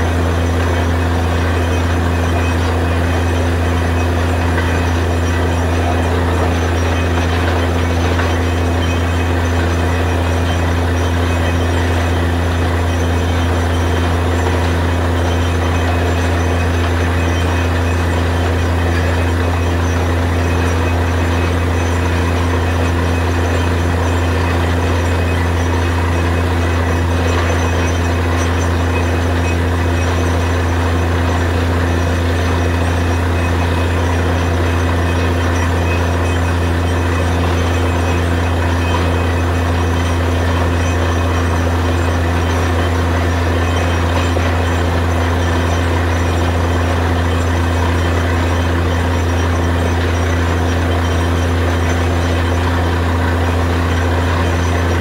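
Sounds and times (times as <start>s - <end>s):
drilling rig running: 0.0s - 55.0s.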